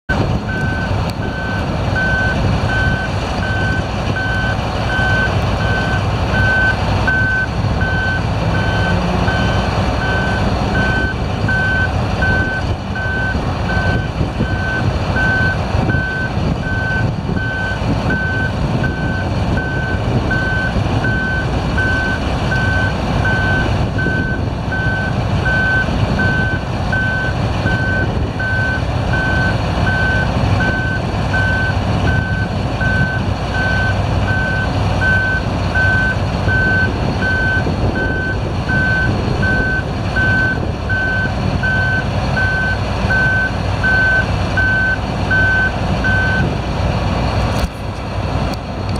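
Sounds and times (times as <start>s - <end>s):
large diesel engine running: 0.1s - 48.9s
vehicle warning alarm beeping: 0.5s - 46.5s.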